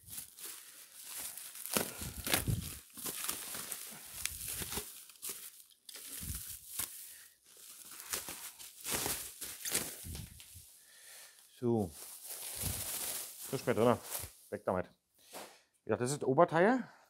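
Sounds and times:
packaging crinkling and tearing: 0:00.0 - 0:10.7, 0:12.0 - 0:14.4.

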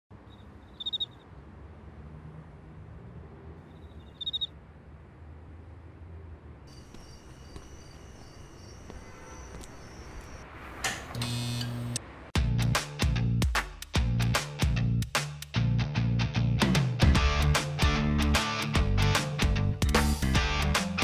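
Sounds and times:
music with heavy beat: 0:12.4 - 0:15.5, 0:16.6 - 0:21.0.

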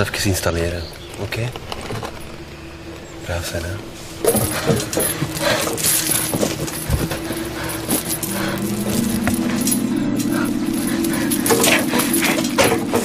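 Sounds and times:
low steady hum: 0:01.8 - 0:13.0
metal chain clinking and rattling: 0:04.1 - 0:13.0.

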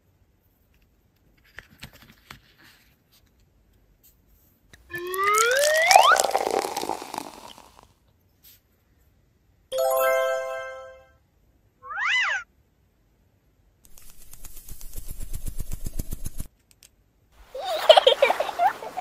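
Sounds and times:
glitter pouring rattle: 0:04.9 - 0:07.8, 0:09.8 - 0:10.9
meow-like call: 0:11.8 - 0:12.4.

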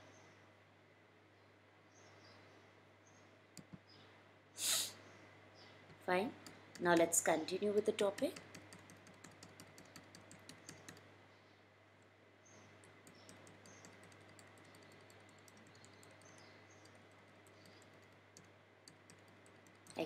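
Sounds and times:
low electrical hum: 0:00.0 - 0:20.0
computer clicks: 0:03.6 - 0:03.8, 0:05.9 - 0:11.1, 0:12.8 - 0:20.0.

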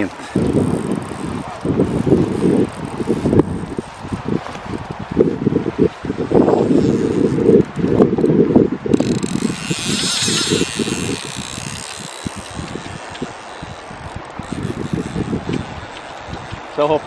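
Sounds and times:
fishing reel ratchet clicking: 0:00.0 - 0:04.2, 0:08.9 - 0:16.7
wind rumbling on microphone: 0:00.0 - 0:17.0.

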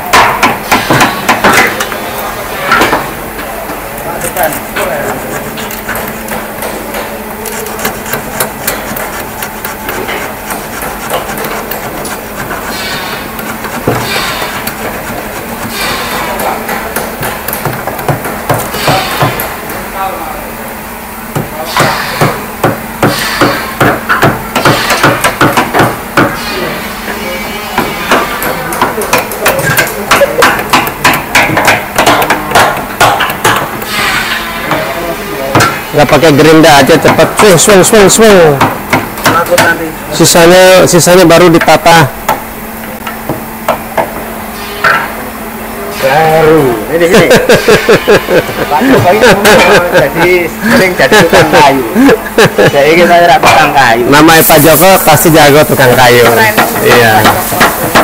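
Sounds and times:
hammer tapping on chisel: 0:00.1 - 0:02.0, 0:04.2 - 0:12.7, 0:13.4 - 0:19.5, 0:21.3 - 0:26.4, 0:27.8 - 0:33.9, 0:36.8 - 0:37.8, 0:38.5 - 0:39.8, 0:55.9 - 0:58.0.

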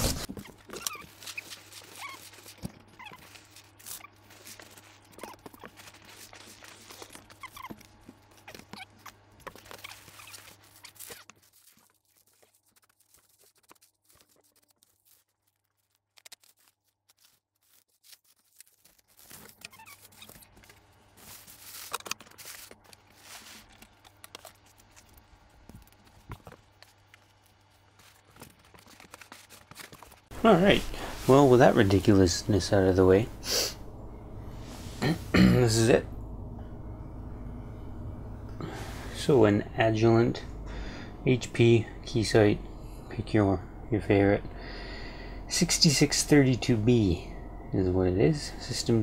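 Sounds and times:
bubble wrap crinkling: 0:00.0 - 0:32.5
packing peanuts rustling and squeaking: 0:00.0 - 0:33.0.

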